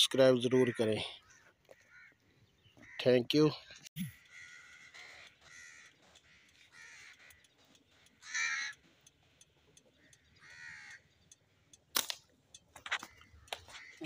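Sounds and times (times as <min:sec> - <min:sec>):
crows cawing: 0:00.5 - 0:03.2, 0:04.1 - 0:11.2, 0:12.9 - 0:14.0.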